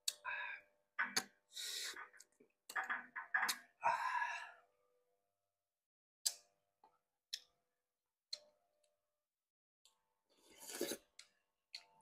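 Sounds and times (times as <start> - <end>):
slurping porridge off a spoon: 10.4 - 11.1.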